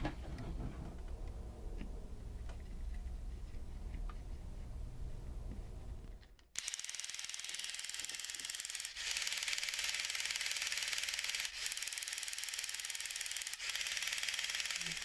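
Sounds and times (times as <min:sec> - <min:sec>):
toy motor gears whirring: 0:06.4 - 0:15.0.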